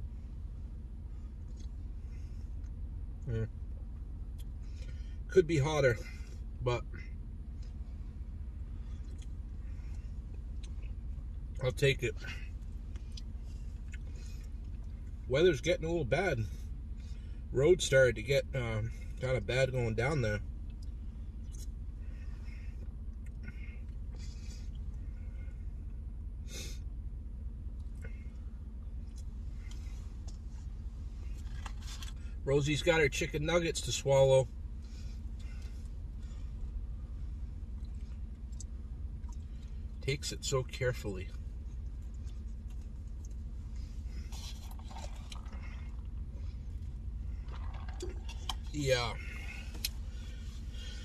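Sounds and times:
low rumble in truck cab: 0.0s - 51.0s
steady low hum: 0.0s - 51.0s
man sipping a drink: 44.1s - 46.8s, 47.4s - 50.0s.

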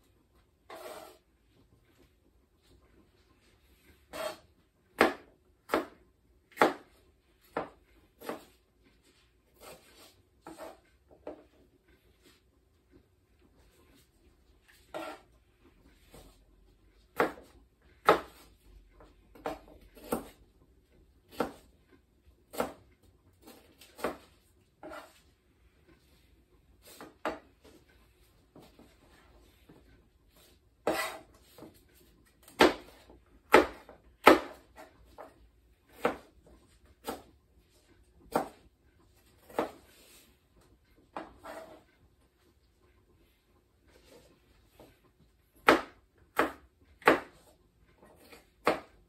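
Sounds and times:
knife chopping on cutting board: 4.1s - 8.6s, 9.5s - 11.6s, 14.9s - 15.3s, 17.1s - 18.5s, 19.3s - 20.4s, 21.3s - 21.7s, 22.5s - 25.2s, 26.8s - 27.4s, 30.8s - 37.3s, 38.3s - 38.7s, 39.4s - 40.0s, 41.1s - 41.8s, 45.6s - 49.0s.

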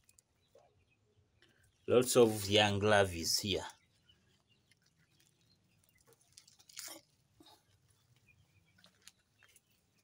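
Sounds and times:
faint ticks and rustles: 0.0s - 0.7s, 3.5s - 10.0s.

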